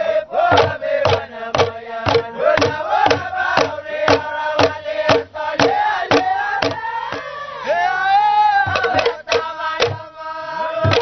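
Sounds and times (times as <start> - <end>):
men chanting in unison: 0.0 - 11.0
hand drum and bamboo beat: 0.5 - 7.3, 8.5 - 10.2, 10.8 - 11.0.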